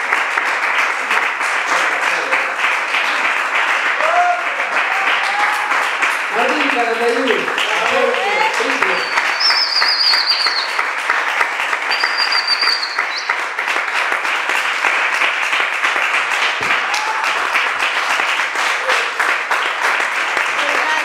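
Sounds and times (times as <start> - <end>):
audience applauding: 0.0 - 21.0
shrill wavering whistles: 8.8 - 10.9, 11.8 - 13.5.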